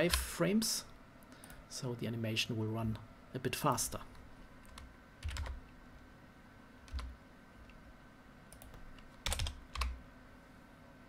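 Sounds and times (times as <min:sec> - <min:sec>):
computer keyboard keystrokes: 0:04.6 - 0:05.6, 0:06.9 - 0:07.1, 0:08.5 - 0:10.0.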